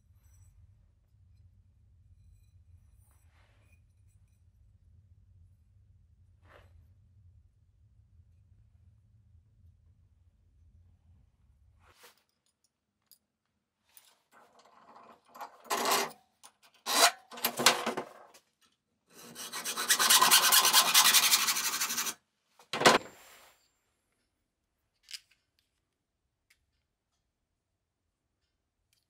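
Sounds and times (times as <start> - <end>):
hacksaw cutting metal tube: 14.5 - 16.2, 16.8 - 18.0, 19.1 - 22.2.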